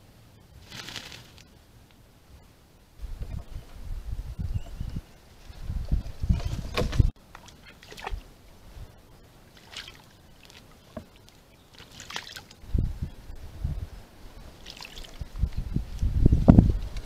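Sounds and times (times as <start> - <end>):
water splashing and sloshing: 5.4 - 12.7, 14.3 - 15.7.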